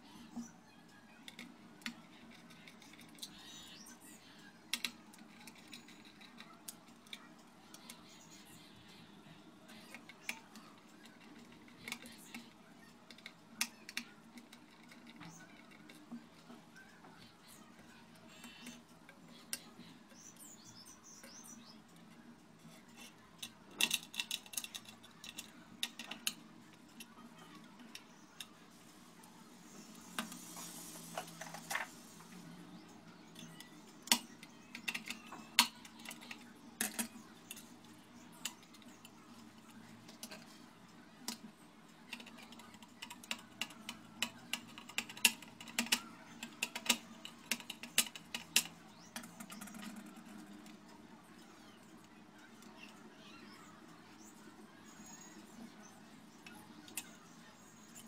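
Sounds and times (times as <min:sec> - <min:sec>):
small metal clicks and taps: 0:09.8 - 0:17.2, 0:17.8 - 0:28.5, 0:33.3 - 0:40.6, 0:41.2 - 0:50.8.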